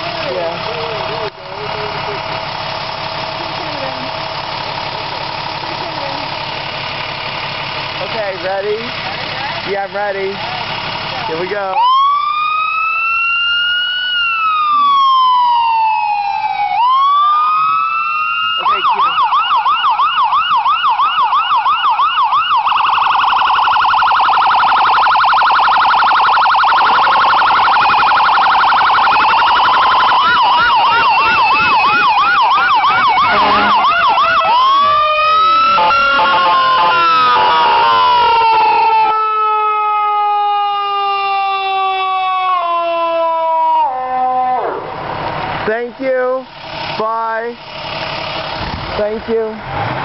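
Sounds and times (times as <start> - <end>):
electronic siren cycling tones: 11.7 - 45.0.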